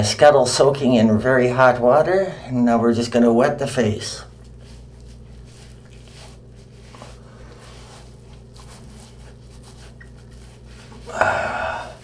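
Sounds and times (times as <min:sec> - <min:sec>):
low steady hum: 0:00.0 - 0:12.0
washcloth rubbing face: 0:03.7 - 0:12.0.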